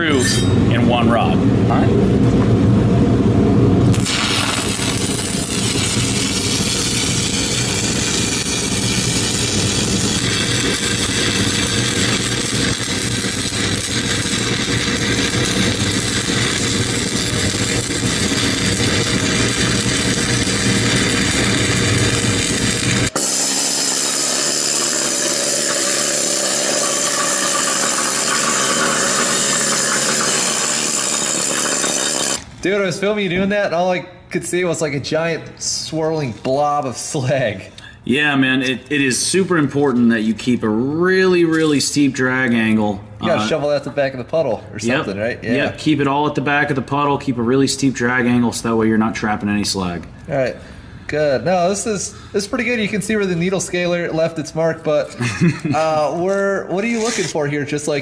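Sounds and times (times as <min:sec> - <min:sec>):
low hum: 0:00.0 - 0:23.1
welding arc crackling: 0:03.8 - 0:32.5.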